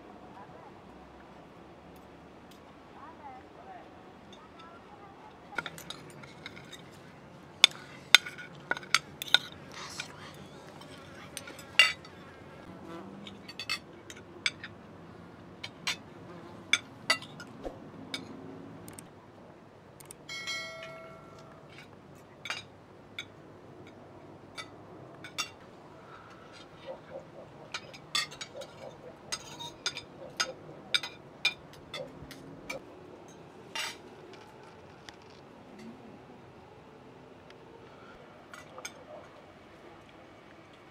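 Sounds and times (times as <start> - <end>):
cutlery clinking on glass plates: 5.5 - 10.1, 10.7 - 12.2, 20.3 - 23.4, 27.7 - 32.1.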